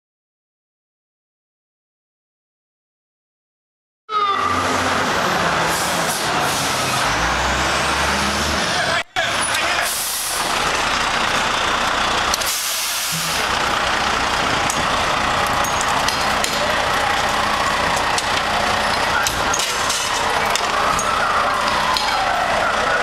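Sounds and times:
diesel engines running: 4.2s - 23.0s.

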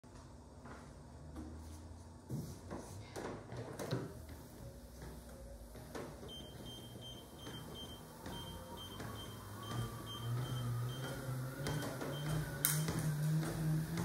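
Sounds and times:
footsteps on treadmill: 0.1s - 14.0s
treadmill high-pitched whine: 3.8s - 14.0s.

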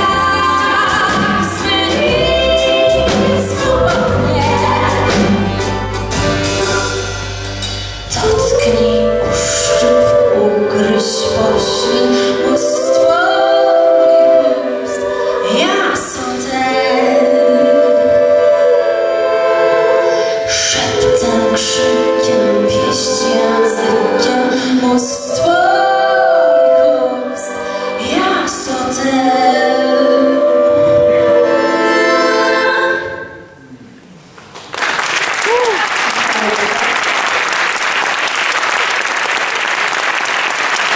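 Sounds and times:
woman singing: 0.0s - 5.5s, 8.1s - 19.1s, 20.5s - 33.2s
bass guitar: 0.0s - 10.4s.

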